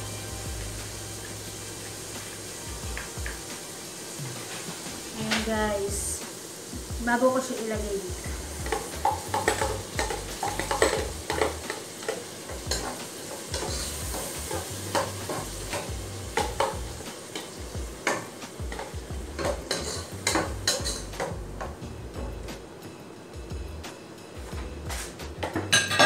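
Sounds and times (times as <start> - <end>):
sauce sizzling: 0.0 - 23.9
metal ladle scraping a pot: 19.4 - 21.0.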